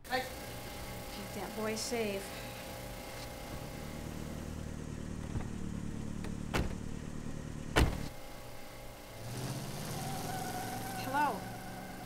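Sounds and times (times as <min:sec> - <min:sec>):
car engine idling: 0:00.0 - 0:12.0
car doors shutting: 0:03.4 - 0:08.2.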